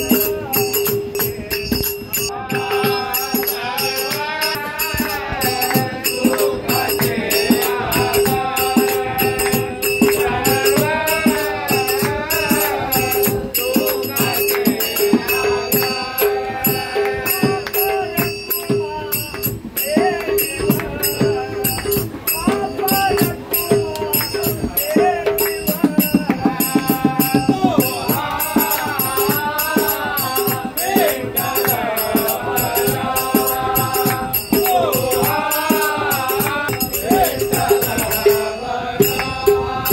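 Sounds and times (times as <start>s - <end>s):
hand cymbals clashing: 0.0s - 39.9s
hand drum: 0.0s - 39.9s
men singing in unison: 0.0s - 39.9s.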